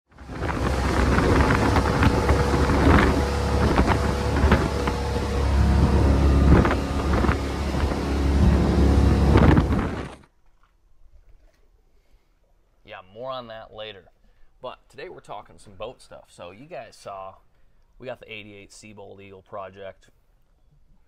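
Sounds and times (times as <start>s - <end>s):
boat engine droning: 0.1s - 10.3s
rushing water: 0.1s - 10.3s
wind: 0.1s - 21.0s.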